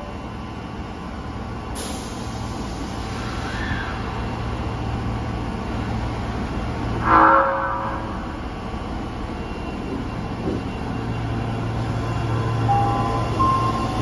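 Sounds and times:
subway train equipment hum: 0.0 - 14.0
train motors low tone: 0.0 - 14.0
train doors hissing shut: 1.8 - 4.0.

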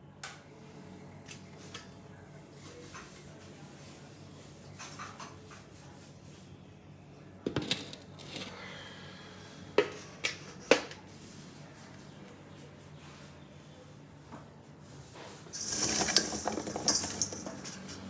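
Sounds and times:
steel kitchen vessels clinking: 15.5 - 18.0.

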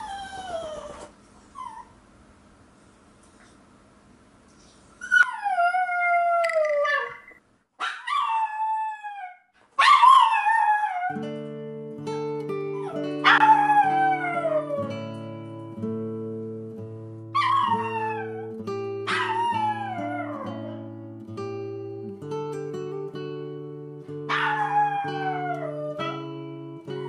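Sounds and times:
soft guitar music: 10.1 - 27.0
dog howling: 12.8 - 14.9, 17.4 - 20.7, 24.3 - 26.2.

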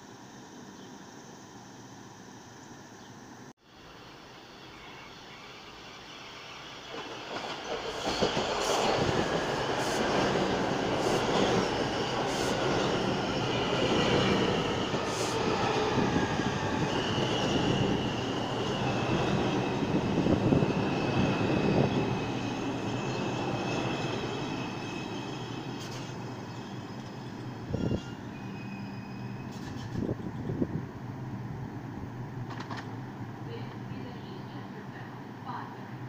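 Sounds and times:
high wheel squeal: 4.4 - 30.2
train wheels rumbling on rail: 5.5 - 36.0
wheels clacking over rail joints: 32.4 - 33.0.

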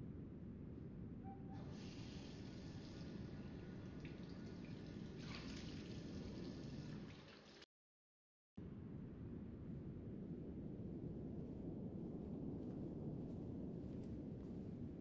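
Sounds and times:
low steady hum: 0.0 - 7.0, 8.6 - 15.0
water splashing: 1.7 - 7.6
tap water running into sink: 3.8 - 7.6.

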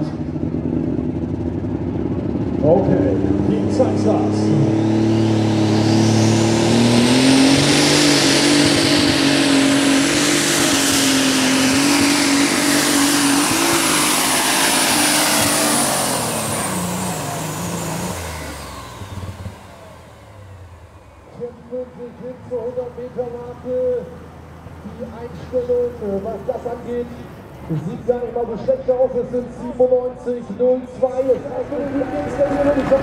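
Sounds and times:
tractor engine at full throttle: 0.0 - 33.0
high turbo whistle: 4.8 - 20.7.

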